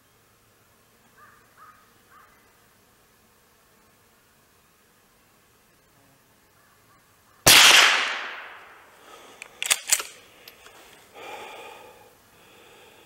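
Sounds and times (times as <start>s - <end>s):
rifle shot with echo: 7.5s - 8.8s.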